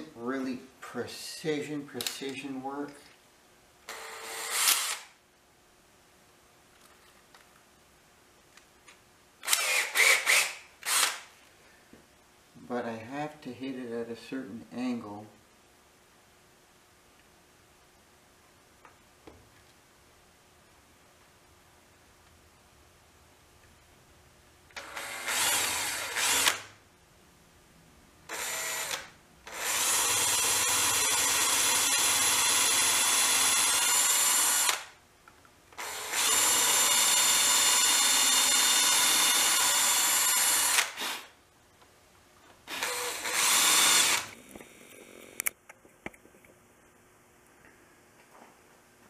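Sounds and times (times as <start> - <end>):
cordless drill whining: 3.9 - 5.2, 9.4 - 11.2, 24.8 - 26.7, 28.3 - 34.9, 35.8 - 41.3, 42.7 - 44.4.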